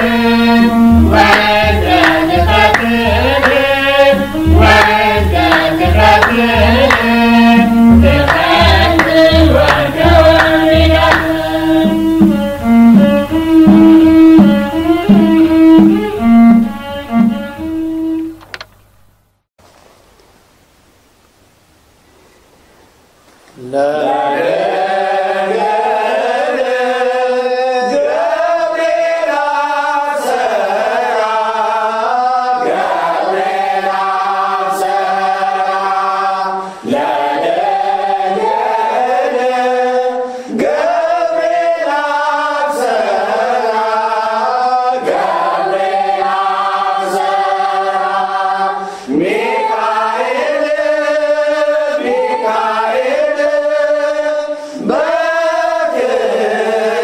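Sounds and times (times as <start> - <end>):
chanted hymn singing: 0.0 - 13.8, 23.6 - 57.0.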